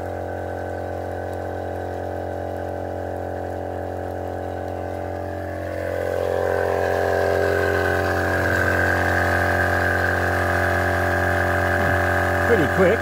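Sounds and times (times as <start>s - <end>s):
air compressor motor hum: 0.0s - 13.0s.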